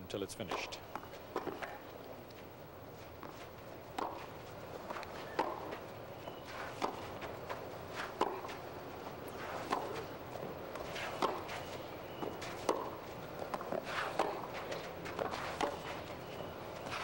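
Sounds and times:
tennis racket striking ball: 0:00.4 - 0:01.9, 0:03.2 - 0:16.2.

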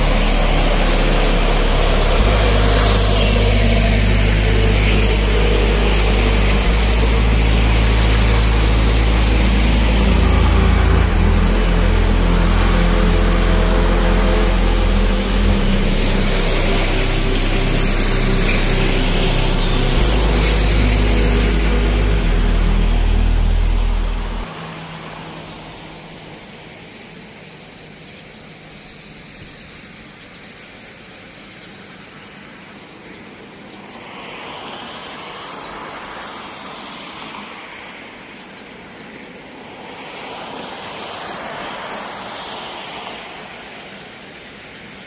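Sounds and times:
vehicle engine running: 0:00.0 - 0:26.4
road traffic hiss: 0:00.0 - 0:45.0.

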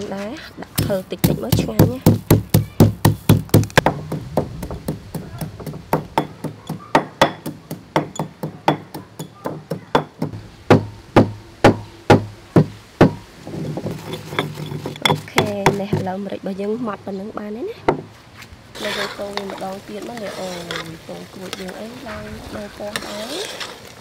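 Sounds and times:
pestle pounding in stone mortar: 0:00.7 - 0:16.2.

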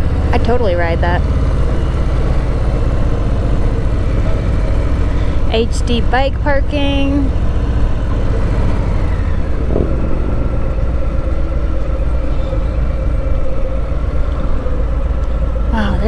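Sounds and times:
motorcycle engine rumble: 0:00.0 - 0:16.0
wind noise: 0:07.8 - 0:15.7.

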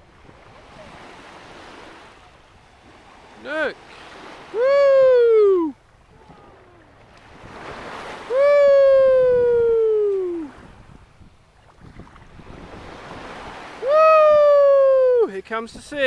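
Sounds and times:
small wave washing up sand: 0:00.0 - 0:15.3
high voice calling ooh: 0:04.5 - 0:06.9, 0:08.3 - 0:10.6, 0:13.8 - 0:15.3.

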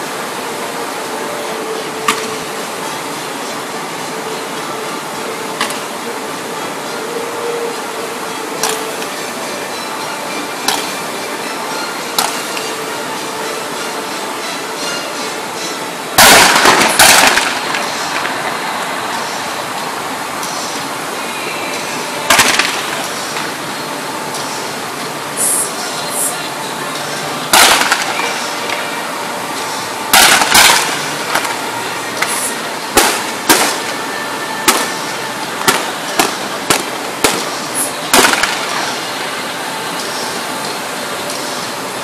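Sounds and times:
steady rushing hiss: 0:00.0 - 0:42.0
fireworks bangs: 0:16.2 - 0:18.3, 0:22.3 - 0:23.0, 0:27.5 - 0:28.4, 0:30.2 - 0:31.5, 0:33.0 - 0:34.0, 0:35.6 - 0:38.9.

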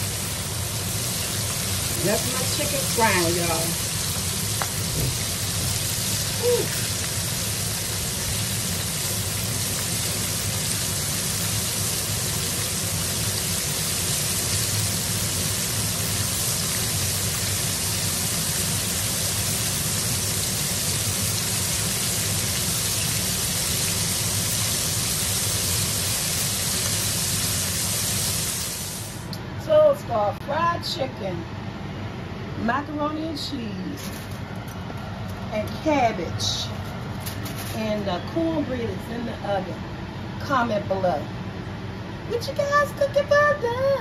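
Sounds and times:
chicken deep-frying in oil: 0:00.0 - 0:29.3.

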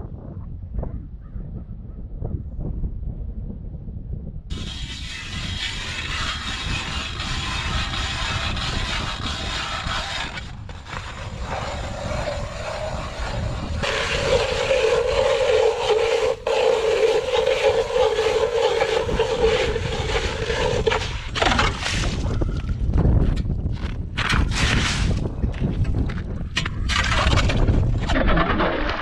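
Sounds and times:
ice auger grinding through ice: 0:04.5 - 0:22.8, 0:24.2 - 0:25.3, 0:26.5 - 0:29.0.

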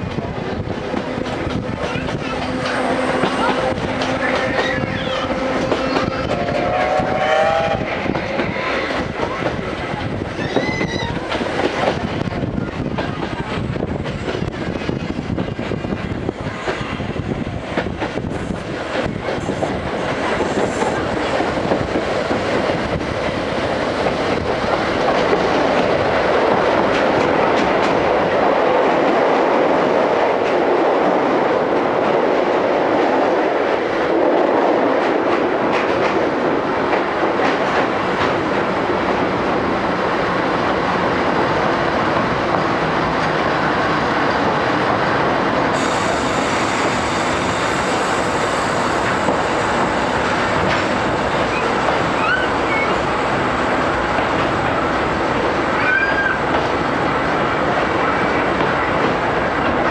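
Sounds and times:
rail-joint clicks: 0:00.0 - 0:07.1, 0:45.8 - 0:53.0
train wheels rumbling on rails: 0:00.0 - 0:59.9.

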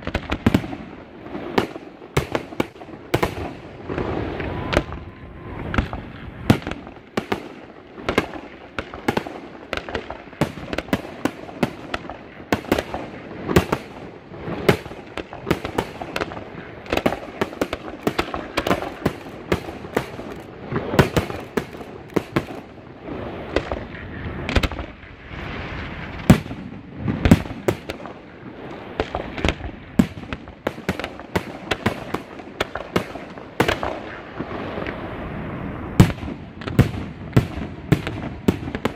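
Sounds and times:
firework shells bursting: 0:14.7 - 0:22.8.

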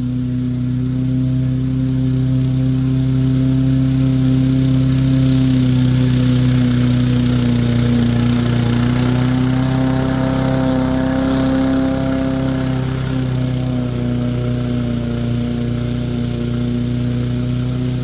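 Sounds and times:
lawn mower engine running: 0:00.0 - 0:18.0.

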